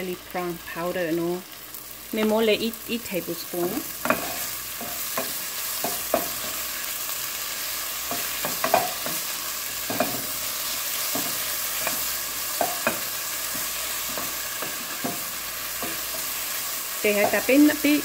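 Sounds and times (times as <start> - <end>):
okra sizzling in oil: 0.0 - 18.0
spatula scraping a pan: 4.0 - 18.0.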